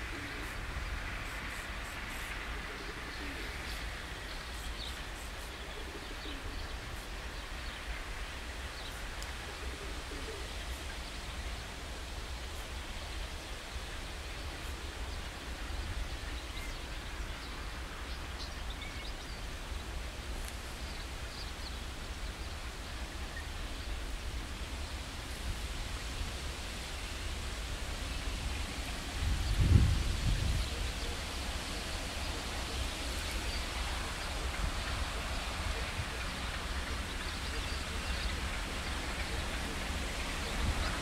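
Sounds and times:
low outdoor rumble and hiss: 0:00.0 - 0:41.0
dove cooing: 0:02.6 - 0:03.7, 0:05.6 - 0:06.5, 0:09.5 - 0:10.6.

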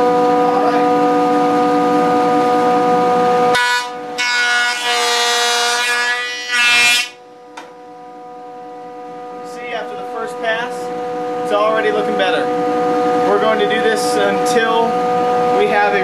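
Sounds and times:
jointer running with whine: 0:00.0 - 0:16.0
cutterhead planing wood: 0:03.6 - 0:07.2.

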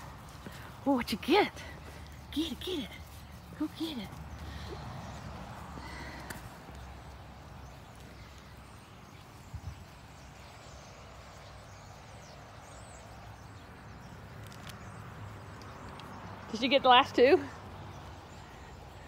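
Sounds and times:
footsteps on dry grass: 0:00.0 - 0:09.5.

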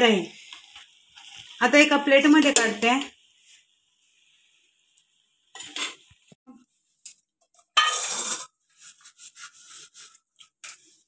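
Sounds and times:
ladle scraping and clinking: 0:07.8 - 0:08.5.

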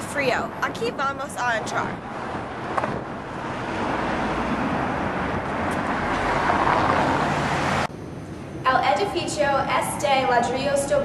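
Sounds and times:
vehicle rushing on street: 0:01.0 - 0:08.7.

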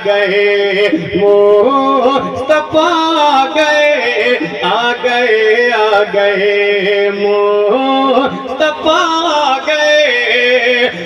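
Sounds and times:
man singing: 0:00.0 - 0:11.0.

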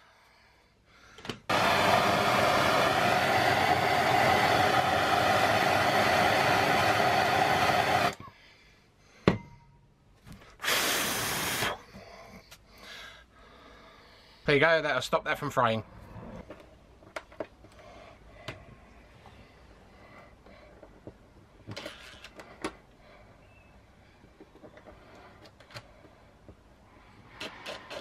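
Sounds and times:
blowtorch click: 0:01.5 - 0:08.2
blowtorch hissing: 0:01.5 - 0:08.2, 0:10.6 - 0:11.8.

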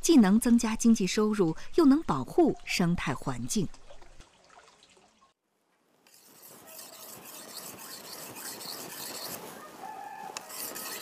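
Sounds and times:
steady scraping: 0:06.1 - 0:09.6, 0:10.4 - 0:11.0.

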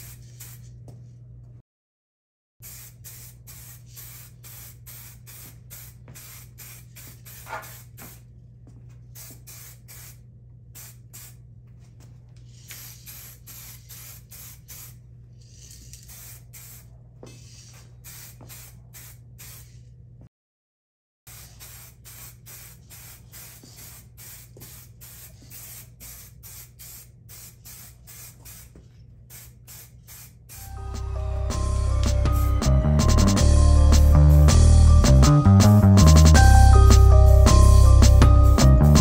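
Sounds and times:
spray can hissing bursts: 0:00.0 - 0:00.8, 0:02.6 - 0:08.3, 0:09.1 - 0:10.2, 0:10.8 - 0:11.4, 0:12.5 - 0:19.9, 0:21.3 - 0:31.0
low hum: 0:30.6 - 0:35.1.

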